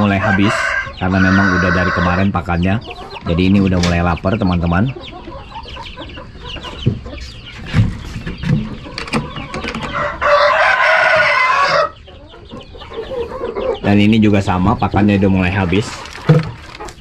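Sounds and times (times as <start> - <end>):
rooster crowing: 0.0 - 2.4, 9.8 - 12.0
chicks peeping: 0.0 - 17.0.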